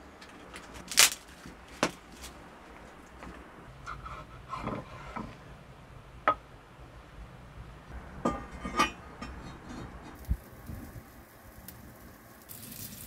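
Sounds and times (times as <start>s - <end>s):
metal pan scraping on stones: 3.9s - 5.4s, 8.3s - 10.2s.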